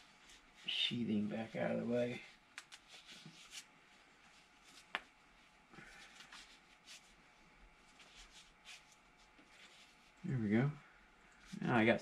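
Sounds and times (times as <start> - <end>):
faint rustling: 0.0 - 12.0
small clicks of hands working: 2.5 - 3.3.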